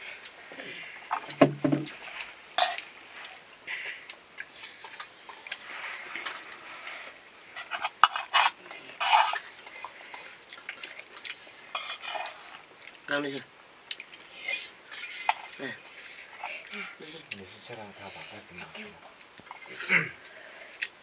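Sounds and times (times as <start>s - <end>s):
utensils clinking and scraping dishes: 7.6s - 12.6s, 17.7s - 20.1s.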